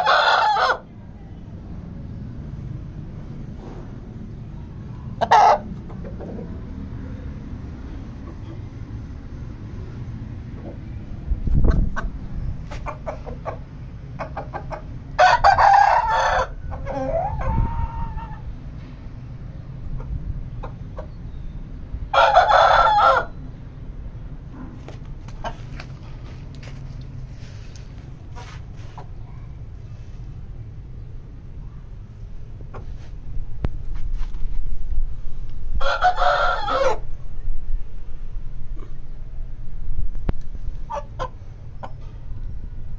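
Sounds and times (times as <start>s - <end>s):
rooster crowing: 0.0s - 0.8s, 15.2s - 18.4s, 22.1s - 23.4s, 35.8s - 37.1s
steady low rumble: 0.9s - 22.2s, 23.3s - 42.9s
rooster clucking: 5.2s - 6.7s, 11.6s - 18.5s, 19.9s - 21.2s, 24.7s - 26.8s, 35.8s - 37.1s, 40.8s - 42.1s.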